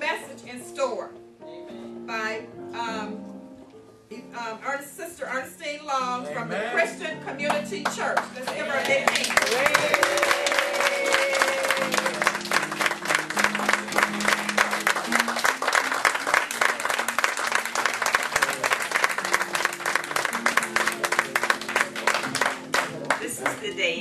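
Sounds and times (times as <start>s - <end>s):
congregation clapping: 7.5s - 23.8s.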